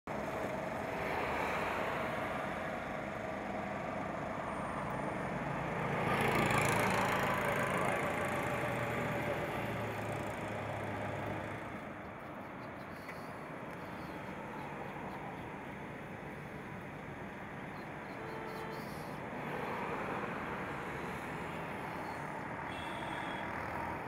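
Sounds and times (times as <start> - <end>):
vehicle engines running: 0.1 - 24.0
vehicle passing close: 4.4 - 12.0.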